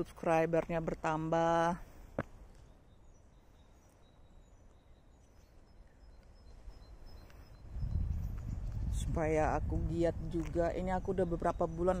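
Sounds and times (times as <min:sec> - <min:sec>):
distant bird calls: 0:00.8 - 0:09.0.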